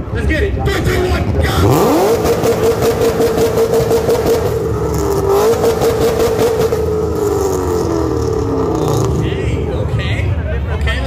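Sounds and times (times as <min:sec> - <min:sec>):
car engine revving hard: 0:01.4 - 0:10.0.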